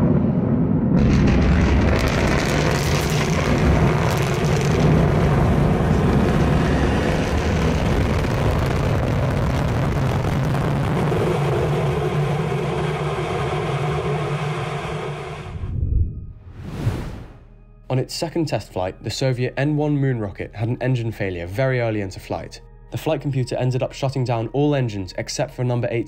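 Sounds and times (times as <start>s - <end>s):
rocket engine firing: 0.0s - 15.5s.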